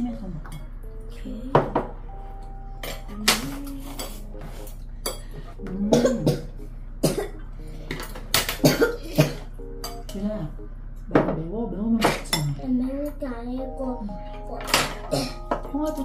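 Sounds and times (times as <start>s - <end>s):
person coughing: 5.8s - 7.4s, 8.6s - 9.5s, 15.1s - 15.4s.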